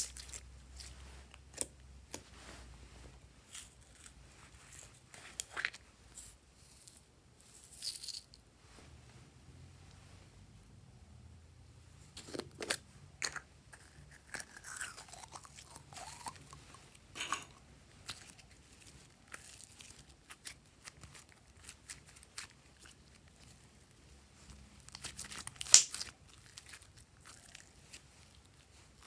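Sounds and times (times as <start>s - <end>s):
slime squishing with sticky pops: 24.8s - 29.0s.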